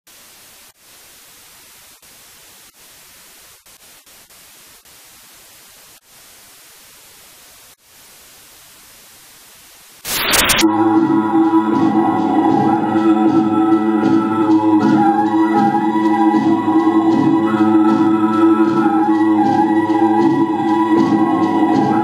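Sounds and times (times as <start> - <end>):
static hiss: 0.1 - 12.3
loud burst of noise: 10.0 - 12.4.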